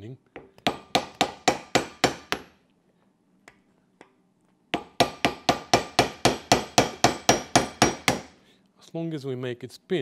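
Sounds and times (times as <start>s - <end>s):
hammer striking metal: 4.7s - 8.4s.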